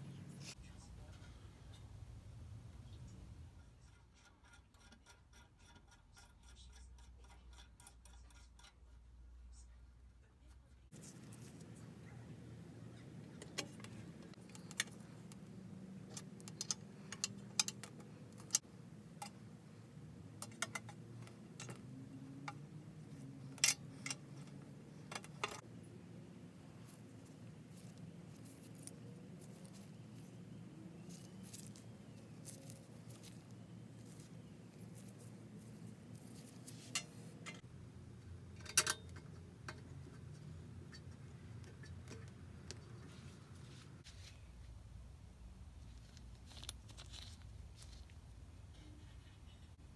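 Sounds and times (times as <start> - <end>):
low steady hum: 0.0 - 5.2, 6.2 - 49.9
metallic clicks and taps: 16.1 - 19.4, 38.6 - 42.9.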